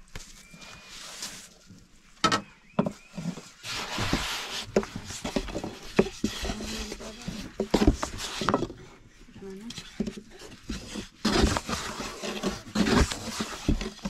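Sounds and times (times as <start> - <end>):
rolling pin rubbing dough: 3.6 - 8.6, 10.2 - 14.0.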